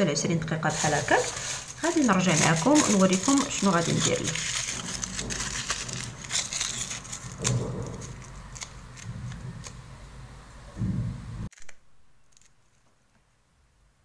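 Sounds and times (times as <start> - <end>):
aluminium foil crinkling: 0.4 - 9.8.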